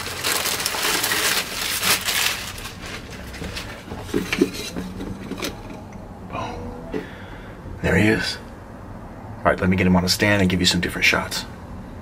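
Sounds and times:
plastic bag crinkling: 0:00.0 - 0:03.9.

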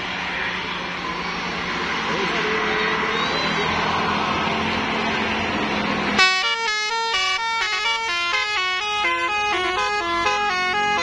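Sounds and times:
bus air horn melody: 0:06.2 - 0:11.0.

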